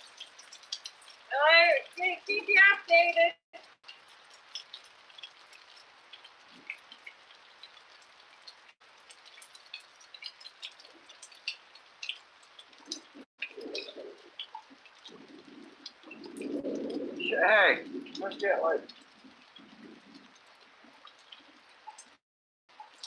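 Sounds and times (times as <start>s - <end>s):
rain hiss: 0.0s - 2.6s, 3.6s - 22.0s
close drips and patters: 0.0s - 23.0s.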